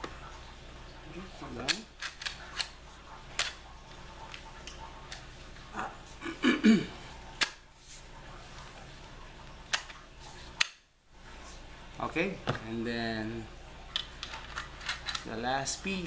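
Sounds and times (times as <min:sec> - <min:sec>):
shotgun parts clicking: 0:13.9 - 0:15.3.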